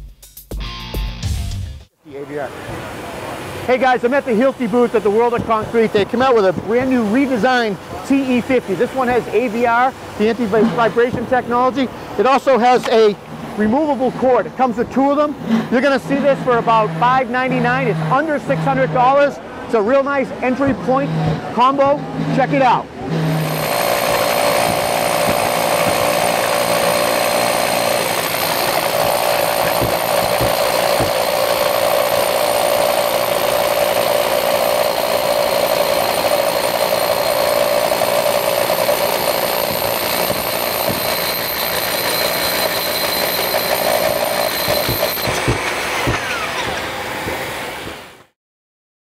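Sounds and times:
hammer drill drilling concrete: 3.8 - 14.3, 20.6 - 48.0.

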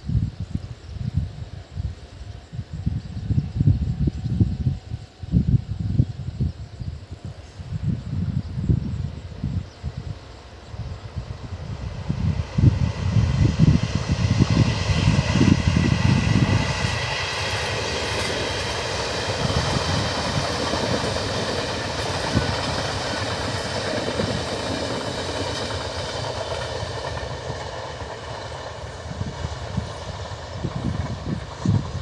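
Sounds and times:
train low rumble: 0.0 - 32.0
train wheels clattering on rails: 11.8 - 32.0.

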